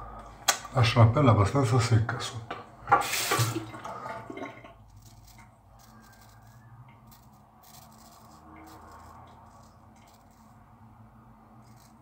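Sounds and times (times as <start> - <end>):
razor scraping stubble: 4.8 - 12.0.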